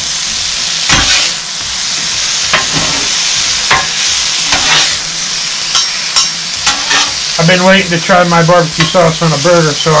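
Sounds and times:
vegetables sizzling on griddle: 0.0 - 10.0
metal spatulas scraping griddle: 0.9 - 1.4, 2.6 - 3.1, 3.7 - 5.0, 5.8 - 7.2.

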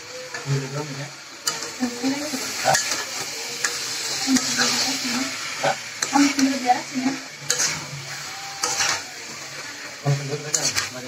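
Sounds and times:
food sizzling: 0.0 - 11.0
metal spatula scraping pot: 2.5 - 11.0.

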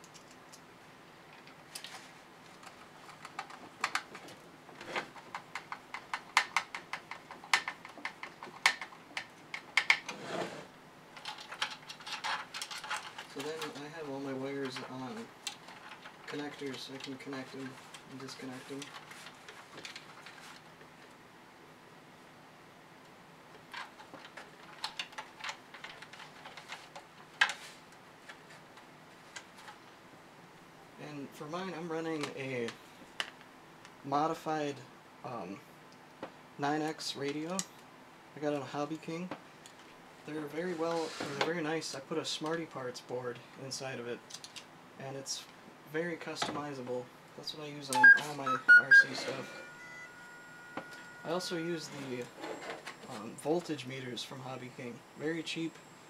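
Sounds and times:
plastic parts clicking and knocking: 2.5 - 4.4, 5.0 - 10.1, 11.2 - 13.8, 14.6 - 18.0, 23.6 - 27.6.

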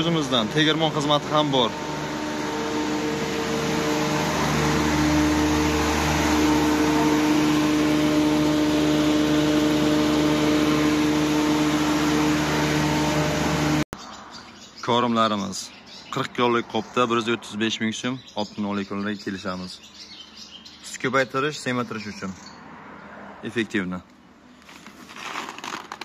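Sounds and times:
grain mill motor humming: 0.0 - 13.9.

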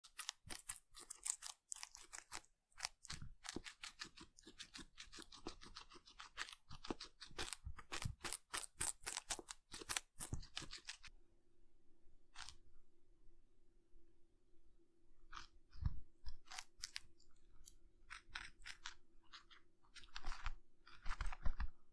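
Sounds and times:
guinea pig crunching celery: 0.0 - 11.1, 12.4 - 12.6, 15.3 - 15.6, 16.3 - 21.8.

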